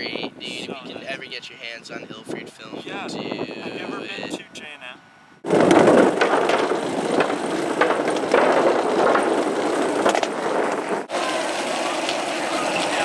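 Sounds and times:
skateboard wheels rolling: 5.4 - 13.0
sharp clacks: 5.5 - 11.1.

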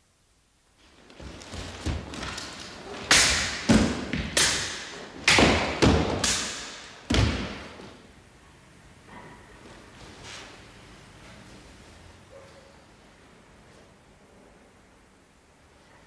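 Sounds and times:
pieces falling on wooden floor: 1.1 - 4.6.

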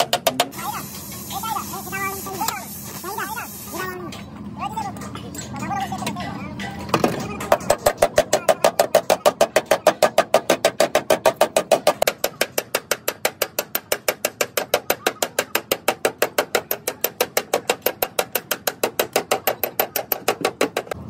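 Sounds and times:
hammer tapping sheet metal: 0.0 - 0.6, 6.0 - 21.0.

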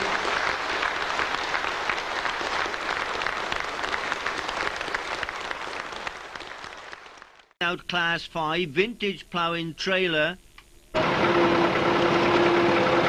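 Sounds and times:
congregation applauding: 0.0 - 7.6.

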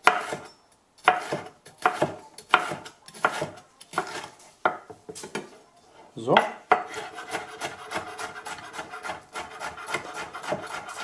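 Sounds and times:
knife slicing pepper: 0.0 - 4.4, 6.8 - 11.0.

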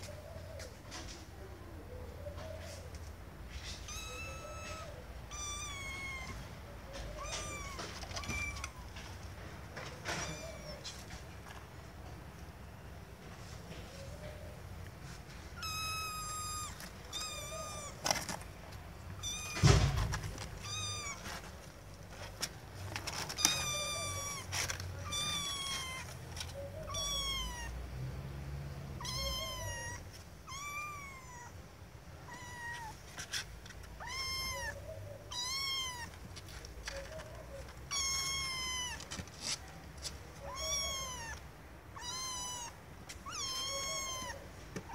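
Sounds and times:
kitten meowing: 3.6 - 9.0, 10.1 - 11.0, 15.6 - 18.2, 19.2 - 21.4, 23.2 - 27.8, 29.0 - 31.6, 32.2 - 33.1, 34.0 - 36.3, 37.8 - 39.2, 40.3 - 44.9.

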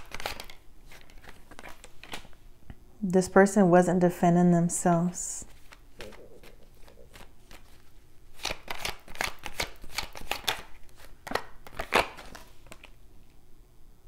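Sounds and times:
cards being shuffled: 0.0 - 2.4, 5.4 - 13.0.

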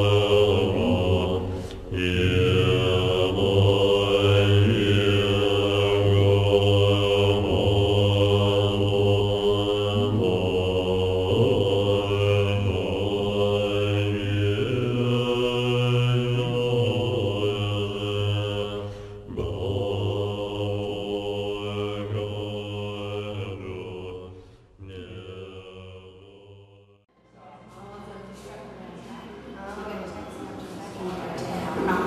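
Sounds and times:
man chanting mantra: 0.0 - 24.2.

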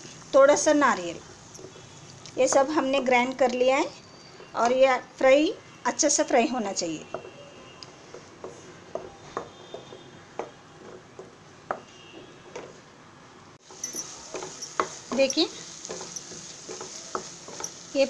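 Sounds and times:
paste sizzling in oil: 13.6 - 18.0
spatula scraping and tapping pan: 13.6 - 18.0.

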